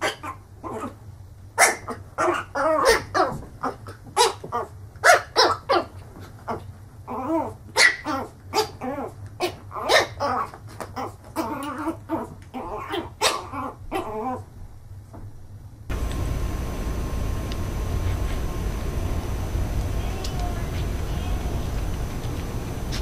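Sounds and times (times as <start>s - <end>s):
puppy barking: 1.6s - 3.3s, 5.0s - 5.9s, 7.8s - 10.4s.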